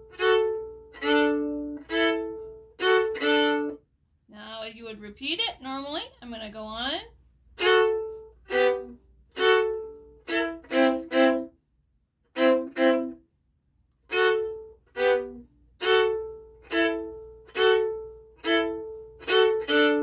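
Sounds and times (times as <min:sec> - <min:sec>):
violin bowed notes: 0:00.0 - 0:03.8, 0:07.6 - 0:11.6, 0:12.3 - 0:13.3, 0:14.0 - 0:20.0.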